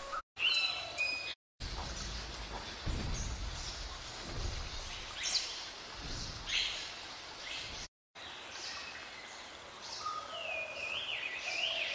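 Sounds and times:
water hissing: 1.6 - 7.9.

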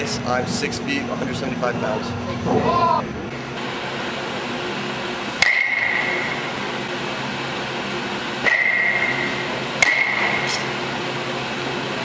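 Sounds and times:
steady hum: 0.0 - 12.0
bat cracking a ball: 5.4 - 6.3, 8.4 - 10.5.

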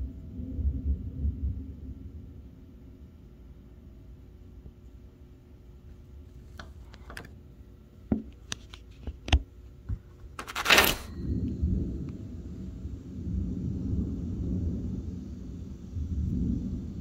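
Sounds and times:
distant thunder rumbling: 0.0 - 3.2, 11.1 - 17.0
phone being handled: 6.5 - 7.4, 8.2 - 11.1.

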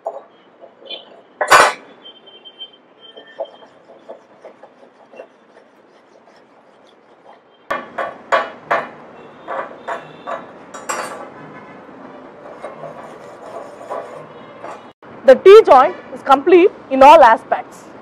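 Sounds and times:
wire brush scrubbing metal: 3.1 - 7.5, 12.4 - 14.9.

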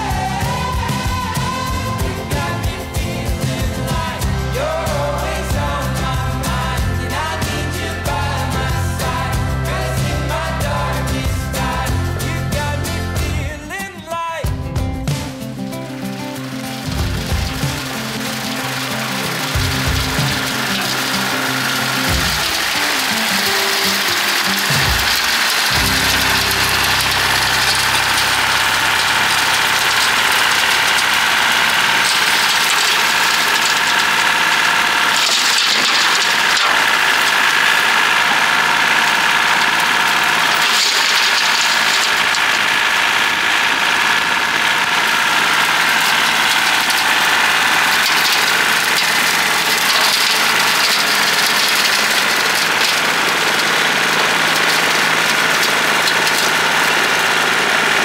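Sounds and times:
rotary cutter whine: 0.0 - 13.6, 15.8 - 58.0
tractor diesel engine running: 0.0 - 58.0.

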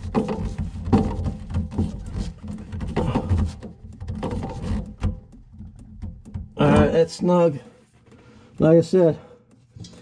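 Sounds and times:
plastic nut clicking and scraping: 0.0 - 6.6.

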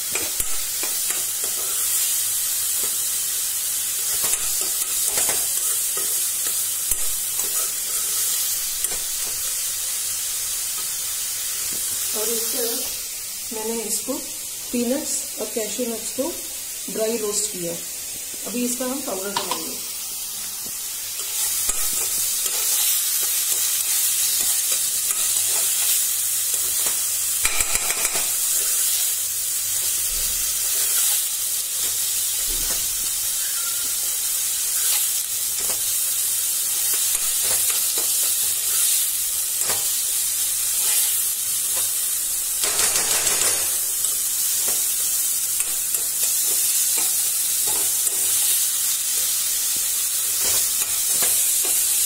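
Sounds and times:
food sizzling in oil: 0.0 - 52.0
spatula scraping a wok: 7.3 - 9.2.

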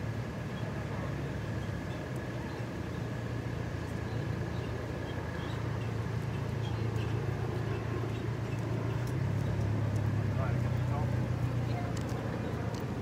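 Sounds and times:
truck engines droning: 0.0 - 13.0.

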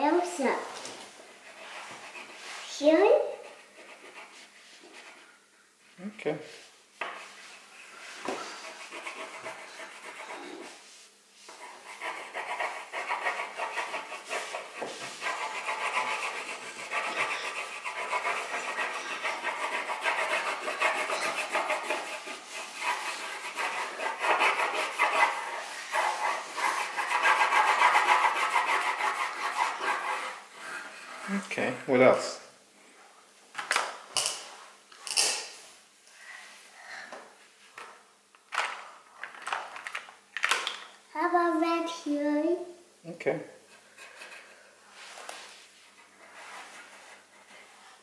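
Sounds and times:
crayon scribbling on paper: 1.4 - 5.2, 8.4 - 10.8, 11.5 - 31.3.

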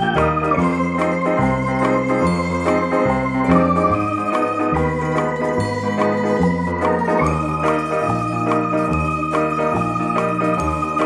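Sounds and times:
electronic organ music: 0.0 - 11.0.

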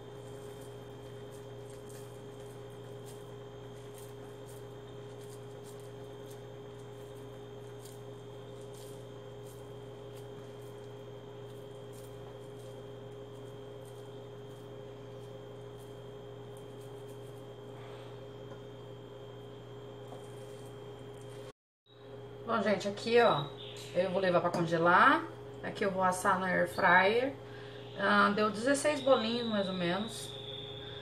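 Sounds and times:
hands squishing food mixture: 0.0 - 18.0
low electrical hum: 0.0 - 31.0.

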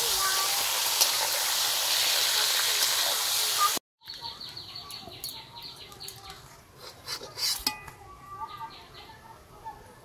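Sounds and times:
metal spatula scraping steel plate: 6.8 - 8.0.

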